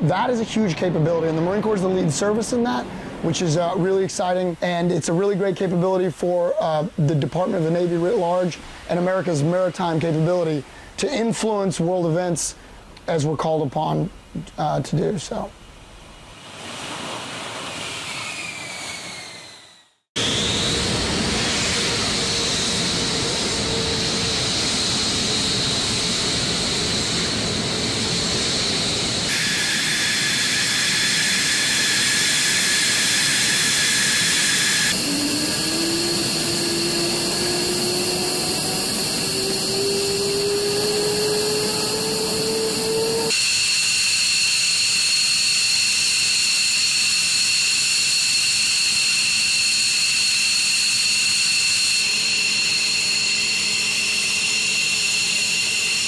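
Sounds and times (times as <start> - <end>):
jet engines hissing and whining: 0.0 - 12.5, 16.2 - 56.0
jet engine spooling up: 16.3 - 56.0.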